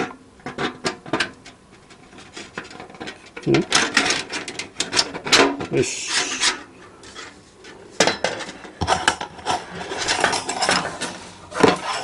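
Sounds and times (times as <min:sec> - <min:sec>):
metal sheet rubbing and scraping: 0:05.8 - 0:07.4, 0:08.8 - 0:12.0.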